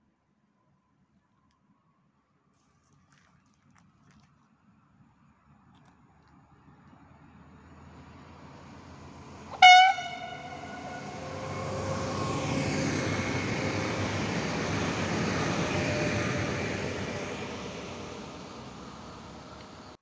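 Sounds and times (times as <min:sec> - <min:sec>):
train rumbling past: 0:07.4 - 0:20.0
train horn toot: 0:09.5 - 0:12.4.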